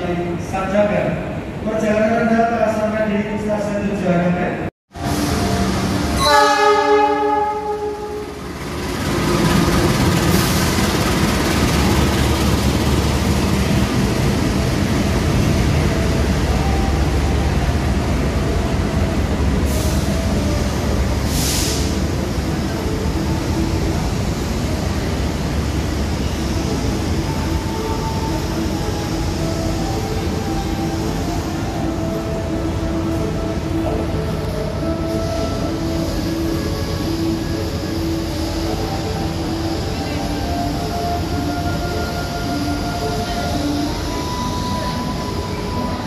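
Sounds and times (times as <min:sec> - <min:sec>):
train wheels rumbling on rails: 0:04.9 - 0:46.0
train horn: 0:06.2 - 0:08.4
brief hisses: 0:21.3 - 0:22.0.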